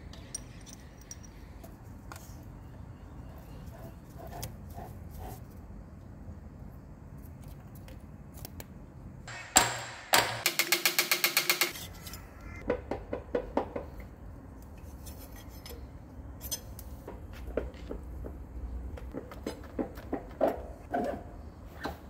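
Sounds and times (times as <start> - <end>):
metal parts knocking and clinking: 0.1 - 1.6.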